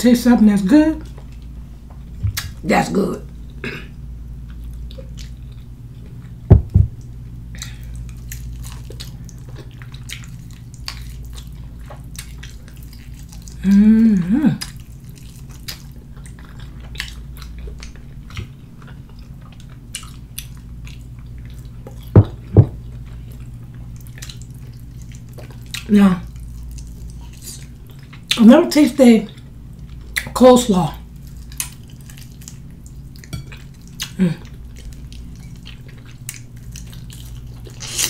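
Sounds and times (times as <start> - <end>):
low hum: 0.0 - 16.9
person chewing: 3.4 - 28.4, 31.1 - 38.0
loud low thuds: 6.4 - 7.0, 22.1 - 22.8
person humming mmm: 13.6 - 14.7, 34.1 - 34.5.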